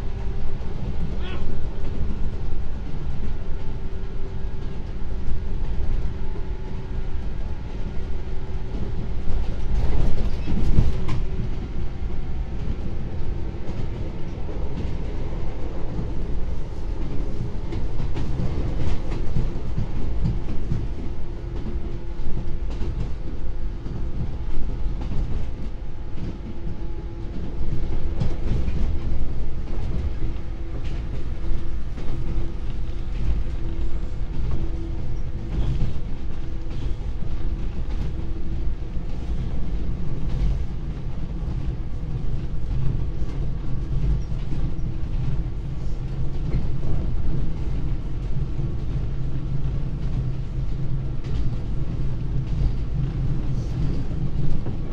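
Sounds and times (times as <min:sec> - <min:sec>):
train wheels rumbling on track: 0:00.0 - 0:54.9
rail-joint clacks: 0:16.8 - 0:54.9.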